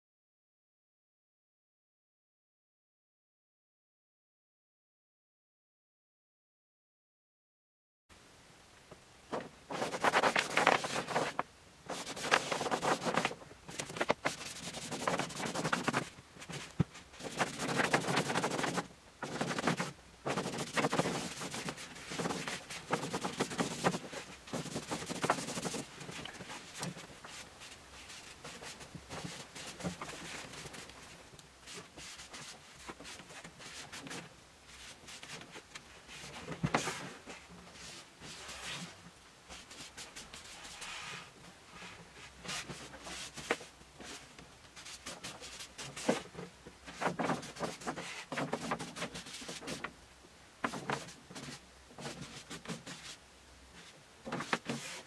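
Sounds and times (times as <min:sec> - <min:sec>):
paper rustling and crinkling: 0:09.3 - 0:38.9, 0:42.3 - 0:49.9, 0:50.6 - 0:53.2, 0:53.8 - 0:55.0.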